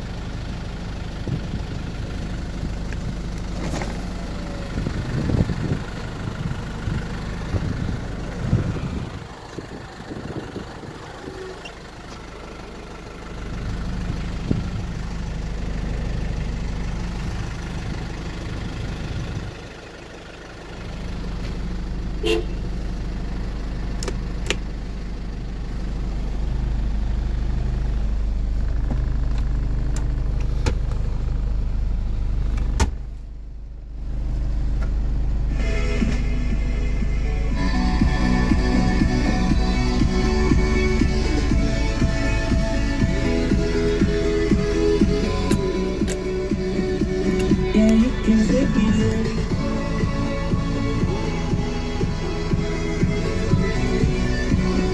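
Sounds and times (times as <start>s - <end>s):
diesel engine idling: 0.0s - 54.9s.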